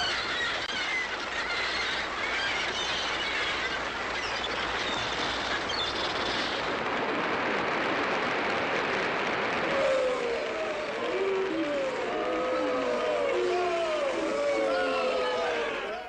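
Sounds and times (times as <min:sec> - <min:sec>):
birds squawking and chirping: 0:00.0 - 0:06.7
audience applauding: 0:00.0 - 0:16.0.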